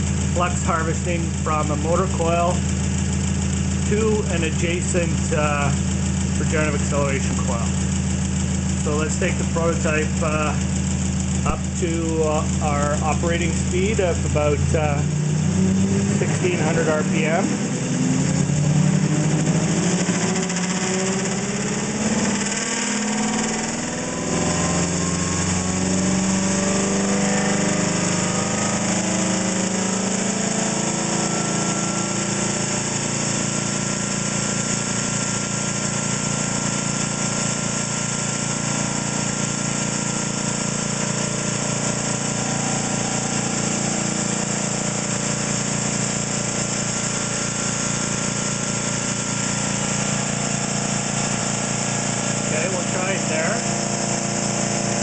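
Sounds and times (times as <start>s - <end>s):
motor whine rising: 12.6s - 55.0s.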